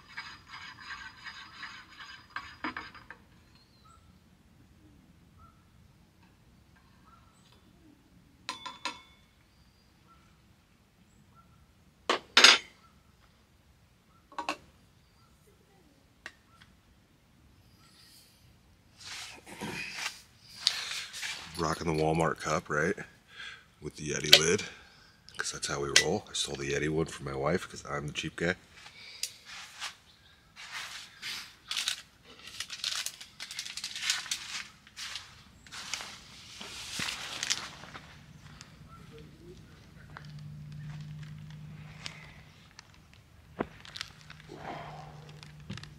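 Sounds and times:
drinkware clinks and knocks: 0:08.5 - 0:09.2
tent fabric rustling: 0:30.6 - 0:38.9.

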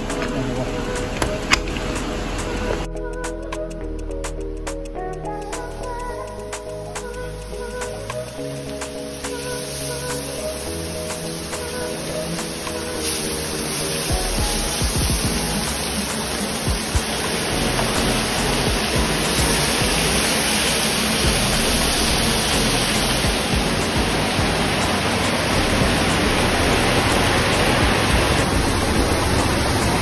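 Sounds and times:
heavy rain: 0:07.2 - 0:30.0
rain pouring off roof: 0:07.9 - 0:30.0
fish frying in oil: 0:09.1 - 0:30.0.

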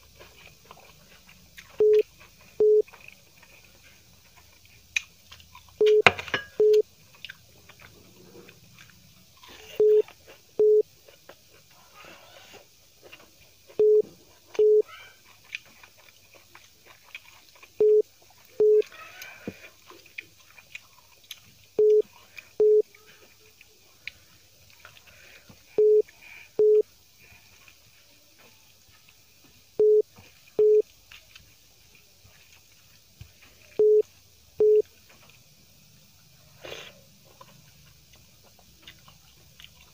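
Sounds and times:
faint chewing: 0:00.0 - 0:39.9
telephone beep tone: 0:01.8 - 0:02.0, 0:02.6 - 0:02.8, 0:05.8 - 0:06.8, 0:09.8 - 0:10.0, 0:10.6 - 0:10.8, 0:13.8 - 0:14.0, 0:14.6 - 0:14.8, 0:17.8 - 0:18.0, 0:18.6 - 0:18.8, 0:21.8 - 0:22.0, 0:22.6 - 0:22.8, 0:25.8 - 0:26.8, 0:29.8 - 0:30.0, 0:30.6 - 0:30.8, 0:33.8 - 0:34.0, 0:34.6 - 0:34.8.

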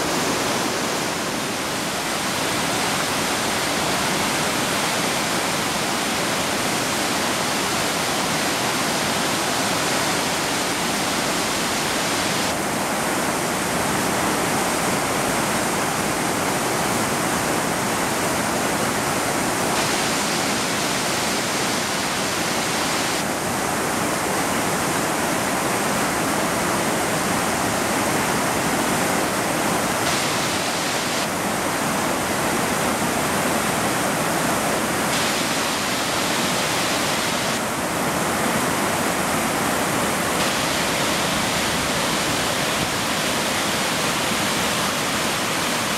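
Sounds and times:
floodwater rushing over weir: 0:00.0 - 0:45.9.

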